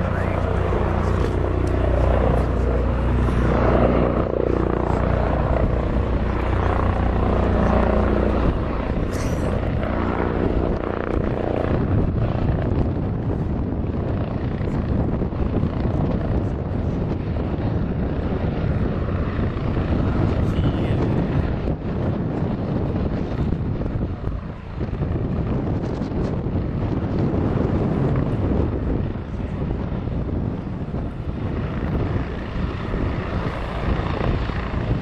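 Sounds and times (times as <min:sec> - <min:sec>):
aircraft engines droning: 0:00.0 - 0:35.0.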